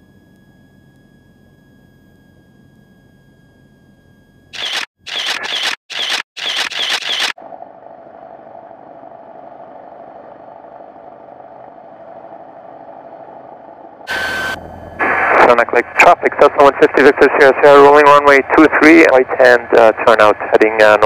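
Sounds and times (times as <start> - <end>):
airplane engine and propeller running: 6.4 - 21.0
loud noisy blasts: 14.1 - 17.6.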